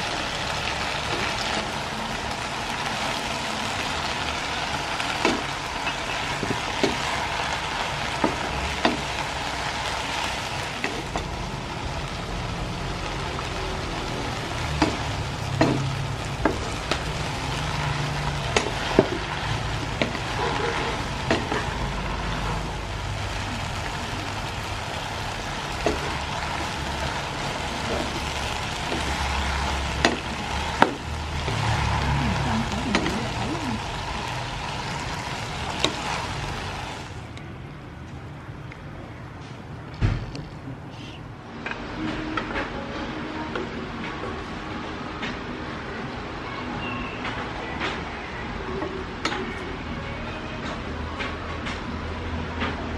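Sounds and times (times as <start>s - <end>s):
greens sizzling in a pan: 0.0s - 37.3s.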